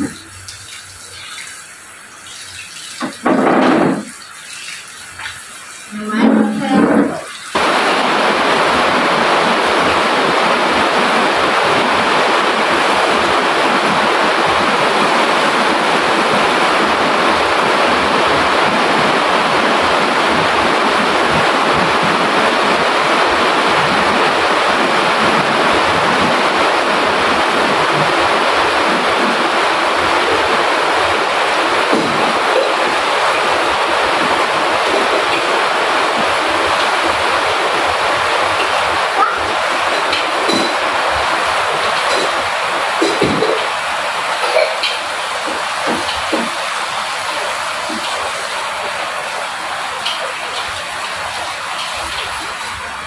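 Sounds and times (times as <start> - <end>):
tap water running into steel sink: 0.0 - 7.6, 39.9 - 41.0, 41.8 - 43.8, 44.4 - 49.0, 49.9 - 52.8
water splashing over leafy greens: 0.0 - 53.0.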